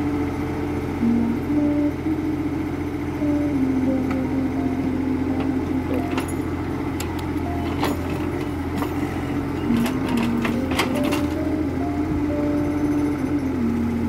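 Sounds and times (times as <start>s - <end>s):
excavator diesel engine droning: 0.0s - 14.0s.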